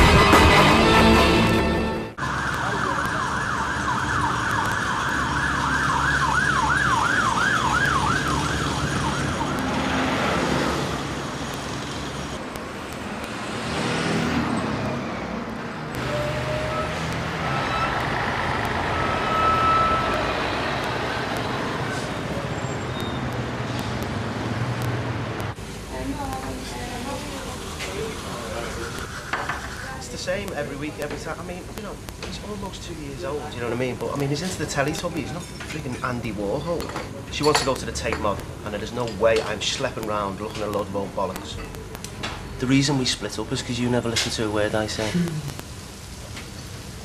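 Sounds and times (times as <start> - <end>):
city street traffic: 0.0 - 47.0
emergency siren wailing: 1.0 - 11.4, 15.8 - 23.1.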